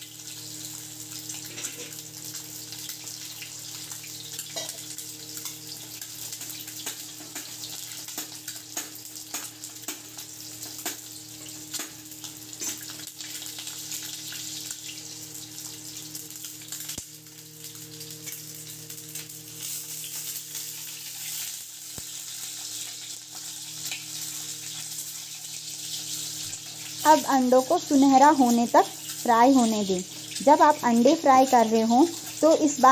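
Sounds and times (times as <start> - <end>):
eggs frying in hot oil: 0.0 - 32.9
oil popping and crackling: 0.0 - 32.9.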